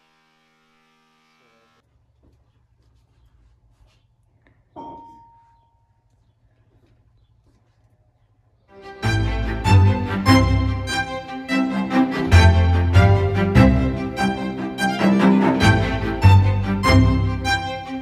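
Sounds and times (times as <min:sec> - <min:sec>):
ringing ding: 0:04.8 - 0:05.8.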